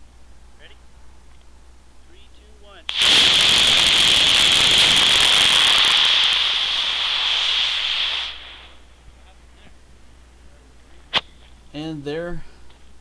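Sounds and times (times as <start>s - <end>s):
rocket motor hissing: 2.9s - 8.9s.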